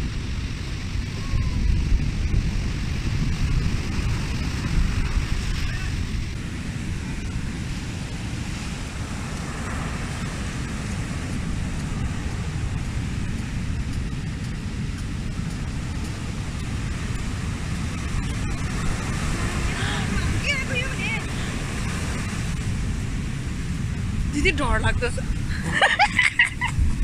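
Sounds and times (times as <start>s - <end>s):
ocean surf breaking on beach: 0.0s - 27.0s.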